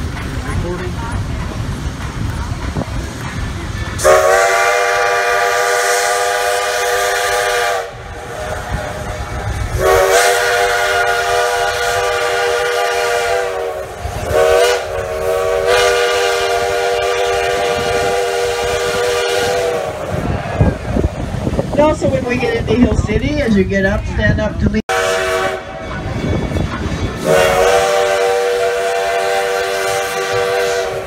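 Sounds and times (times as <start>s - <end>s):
steam locomotive chime whistle blasts: 4.0s - 9.0s, 9.7s - 20.0s, 24.9s - 31.0s.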